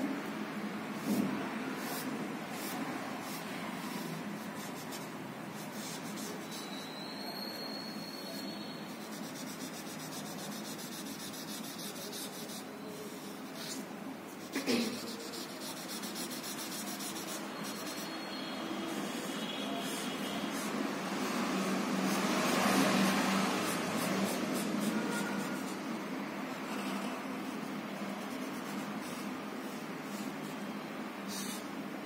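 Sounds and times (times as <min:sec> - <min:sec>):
marker rubbing on paper: 0:00.9 - 0:07.0, 0:08.3 - 0:30.6, 0:31.3 - 0:31.8.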